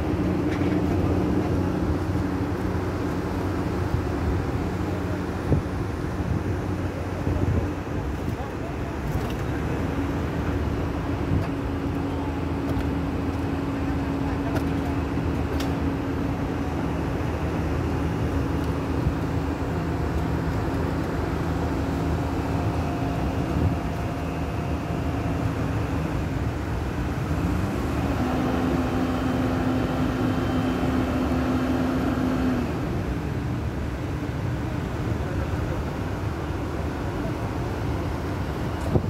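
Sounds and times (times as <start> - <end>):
diesel machinery droning: 0.0 - 39.0.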